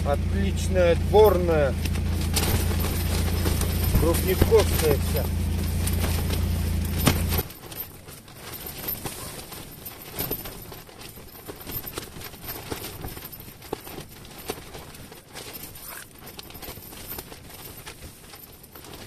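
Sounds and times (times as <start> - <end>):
low steady rumble: 0.0 - 13.6.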